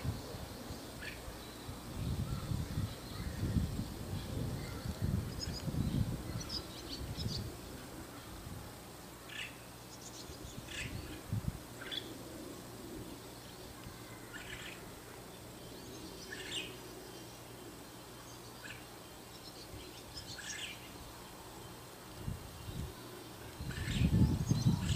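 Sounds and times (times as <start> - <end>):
low wind rumble: 0.0 - 18.1, 19.6 - 24.9
starling calls: 9.2 - 24.9.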